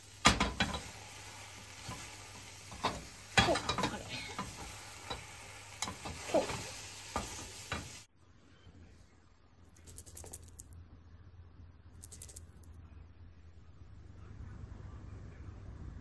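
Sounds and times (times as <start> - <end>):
egg sizzling in a pan: 0.0 - 8.1
spatula scraping and tapping pan: 1.8 - 8.0.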